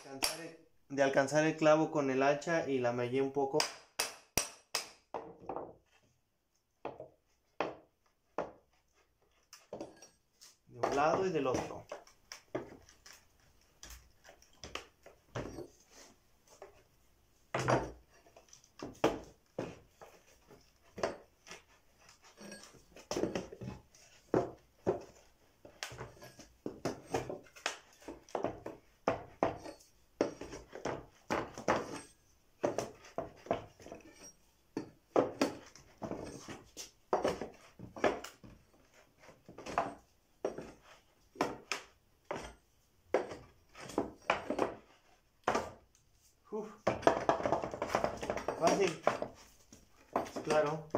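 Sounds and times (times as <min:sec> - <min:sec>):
hammer knocking on hatchet: 0:06.8 - 0:08.6, 0:46.8 - 0:49.4.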